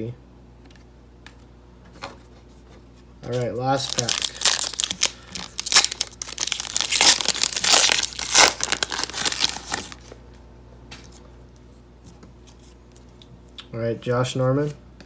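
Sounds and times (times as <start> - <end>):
card pack wrapper crinkling and tearing: 3.3 - 10.1.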